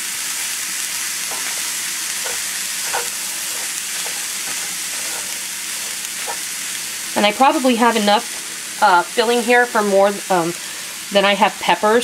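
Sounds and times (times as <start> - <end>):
meat and rice sizzling: 0.0 - 12.0
wooden spoon scraping a pan: 1.2 - 6.6.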